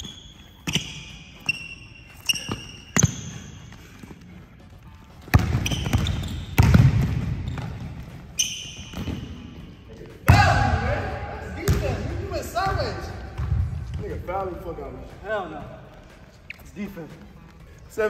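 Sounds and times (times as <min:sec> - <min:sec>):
sneakers squeaking on floor: 0:00.0 - 0:18.0
basketball bouncing on hardwood: 0:05.2 - 0:08.0, 0:11.7 - 0:12.0.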